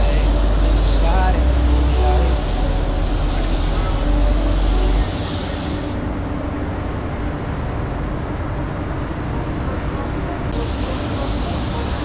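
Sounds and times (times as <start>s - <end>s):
paint spray gun hissing: 0.0s - 6.0s, 10.6s - 12.0s
spray booth airflow rushing: 0.0s - 6.1s, 10.6s - 12.0s.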